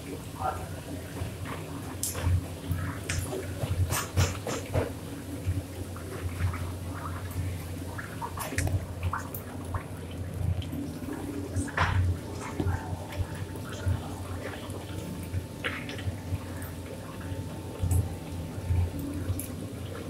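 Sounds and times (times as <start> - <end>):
water trickling: 5.0 - 20.0.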